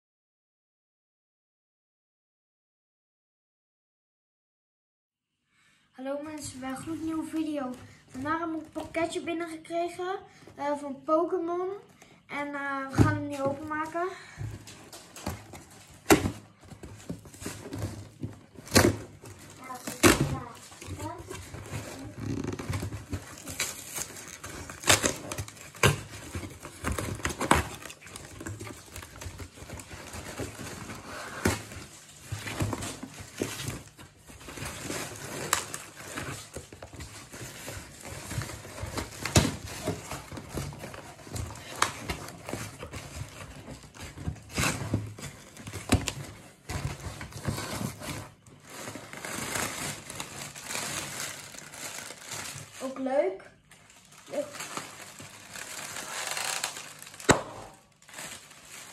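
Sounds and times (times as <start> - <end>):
packing paper rustling: 13.1 - 58.9
cardboard ripping: 14.6 - 52.9, 54.1 - 58.9.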